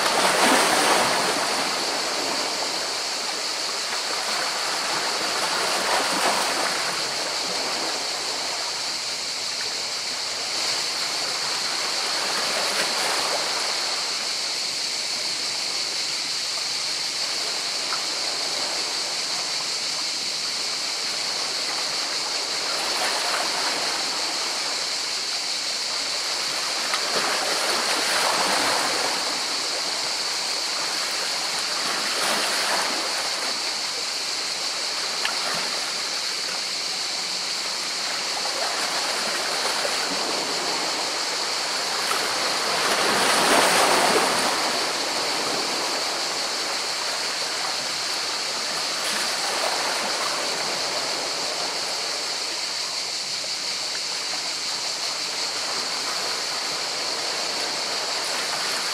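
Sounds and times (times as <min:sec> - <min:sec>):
sea waves washing among rocks: 0:00.0 - 0:08.7, 0:26.3 - 0:52.8.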